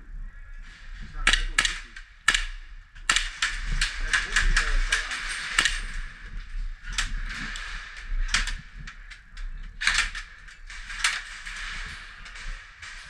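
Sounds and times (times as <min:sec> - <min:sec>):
airsoft gun shots: 0:01.3 - 0:06.0.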